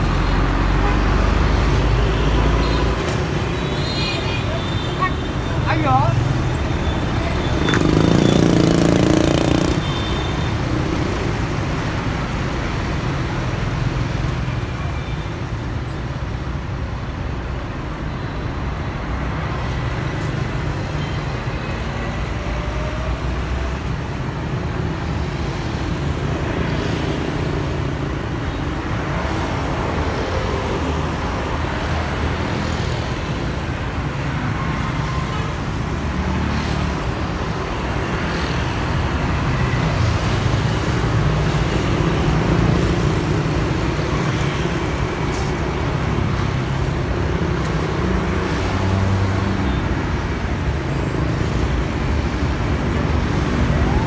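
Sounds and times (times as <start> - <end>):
street traffic: 0.0 - 54.0
bus passing close by: 6.2 - 14.8.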